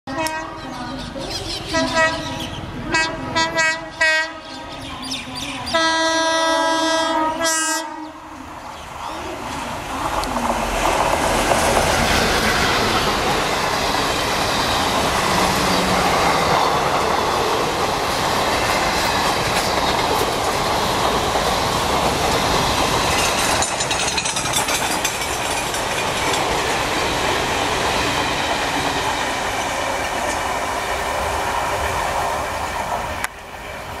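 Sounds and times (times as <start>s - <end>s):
train wheels rumbling and clattering: 8.6s - 34.0s.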